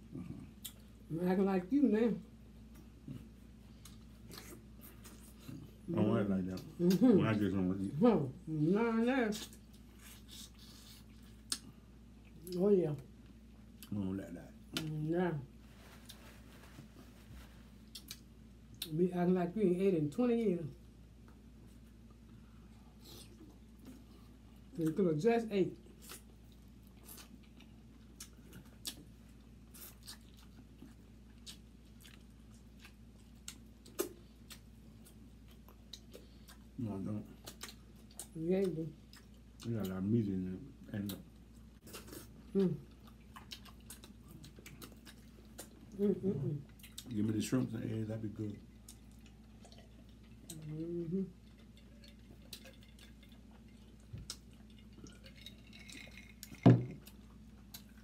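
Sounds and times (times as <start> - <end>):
biting and chewing food: 40.9 - 47.8, 48.5 - 58.0.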